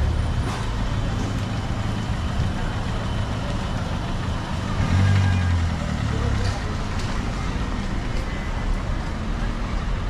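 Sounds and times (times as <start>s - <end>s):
faint voices of passers-by: 0.0s - 10.0s
vehicle engine running: 0.0s - 10.0s.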